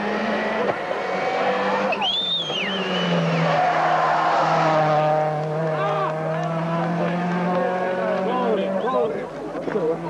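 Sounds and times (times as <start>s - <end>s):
rally car engine running hard: 0.0s - 10.0s
tyre squeal on tarmac: 1.9s - 3.7s.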